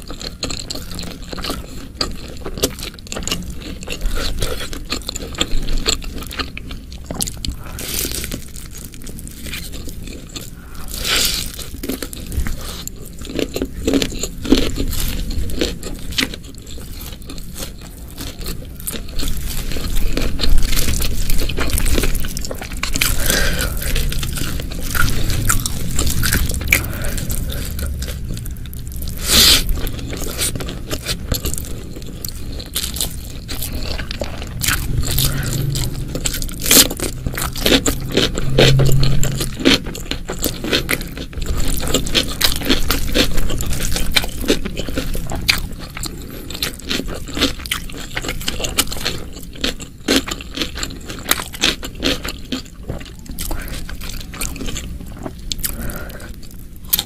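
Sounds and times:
person chewing and crunching food: 0.0 - 57.0.

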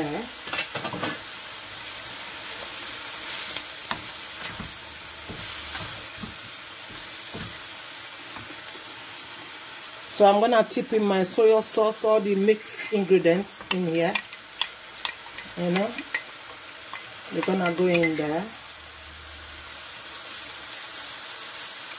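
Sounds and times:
noodles sizzling in a wok: 0.0 - 21.9
wooden spatula scraping wok: 2.7 - 8.7.

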